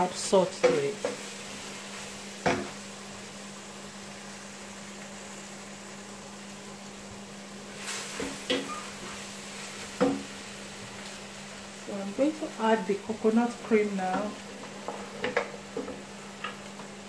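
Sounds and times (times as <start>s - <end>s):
wooden spoon stirring in pot: 7.7s - 17.0s.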